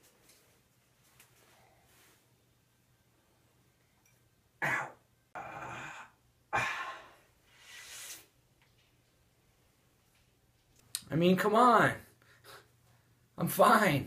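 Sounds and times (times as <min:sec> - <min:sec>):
man coughing: 0:04.6 - 0:05.5
hard breathing: 0:05.7 - 0:08.3.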